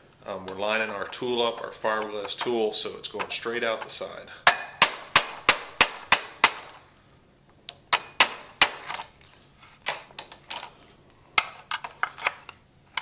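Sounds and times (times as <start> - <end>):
mallet striking hammer: 3.2 - 6.7.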